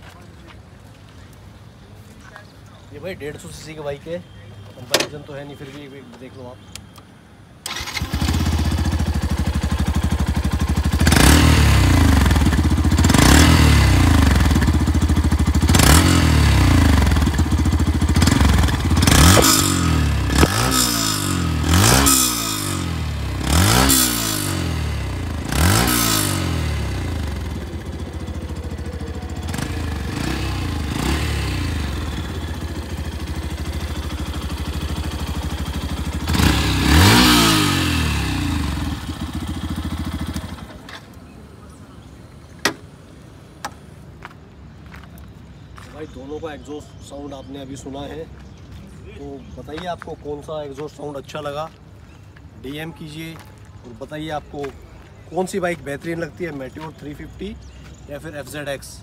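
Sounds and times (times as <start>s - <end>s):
motorcycle engine revving: 7.6s - 40.8s.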